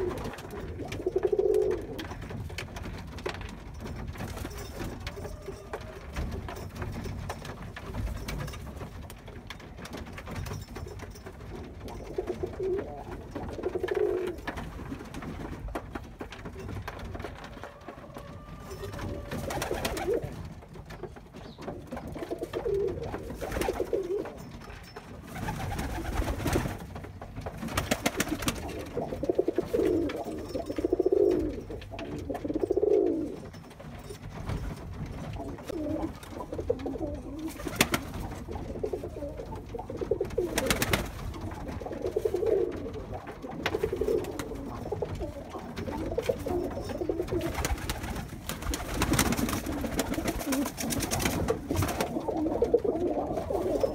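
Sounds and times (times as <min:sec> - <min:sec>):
pigeons cooing: 0:00.0 - 0:02.2, 0:11.8 - 0:14.5, 0:17.7 - 0:20.4, 0:21.8 - 0:24.4, 0:27.9 - 0:33.4, 0:35.4 - 0:47.8, 0:49.3 - 0:53.9
wings flapping: 0:09.8 - 0:20.6, 0:22.0 - 0:24.4, 0:25.2 - 0:33.4, 0:34.5 - 0:53.9.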